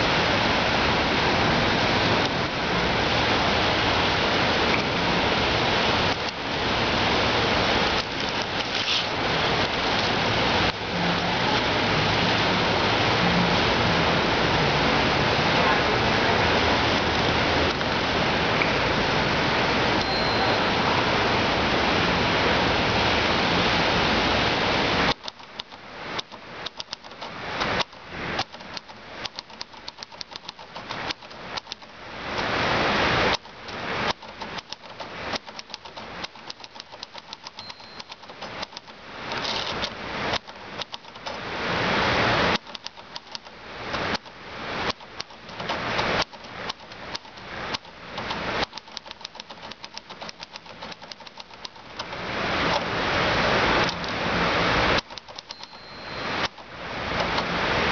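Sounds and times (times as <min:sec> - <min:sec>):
fountain splashing: 0:00.0 - 0:25.2
typewriter keys clacking: 0:25.1 - 0:31.9, 0:34.1 - 0:41.3, 0:44.9 - 0:52.2, 0:55.0 - 0:57.4.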